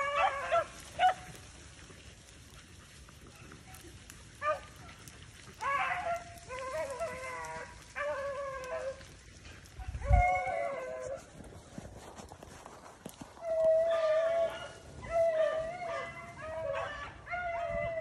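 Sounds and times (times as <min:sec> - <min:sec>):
dog yelp: 0:00.0 - 0:01.3, 0:05.6 - 0:09.0, 0:13.4 - 0:18.0
dog baying: 0:04.4 - 0:11.3, 0:13.2 - 0:18.0.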